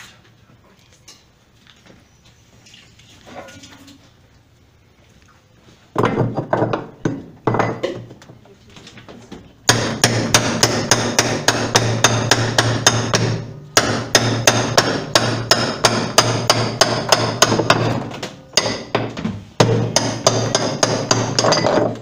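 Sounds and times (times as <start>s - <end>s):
rapid hammer blows on metal: 9.7s - 18.0s, 19.6s - 21.6s.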